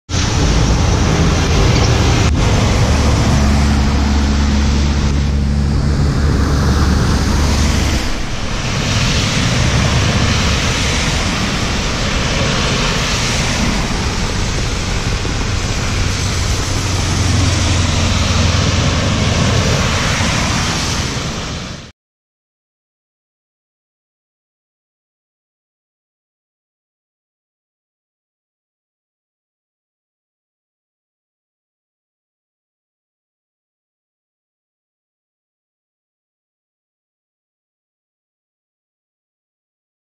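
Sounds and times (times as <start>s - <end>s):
truck engine droning: 0.1s - 21.9s
tyres hissing through water: 0.1s - 21.9s.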